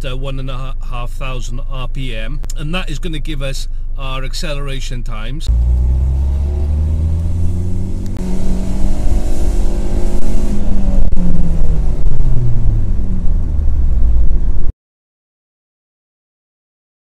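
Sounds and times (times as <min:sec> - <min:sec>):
road noise: 0:05.4 - 0:14.7
car engine revving: 0:05.5 - 0:14.7.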